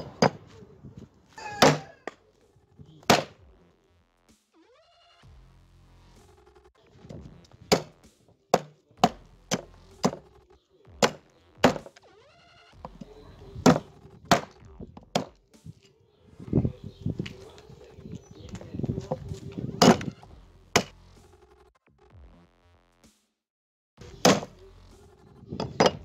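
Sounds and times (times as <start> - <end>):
cleaver chopping meat and bone: 1.4 - 2.0, 3.0 - 3.4, 7.7 - 8.0, 8.6 - 10.2, 11.0 - 11.9, 13.6 - 15.4, 19.8 - 20.2, 20.8 - 21.0, 24.2 - 24.6.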